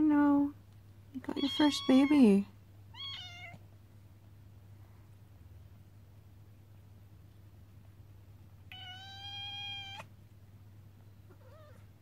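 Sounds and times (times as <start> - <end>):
cat meowing: 2.9 - 3.6, 8.7 - 10.1, 11.3 - 11.9.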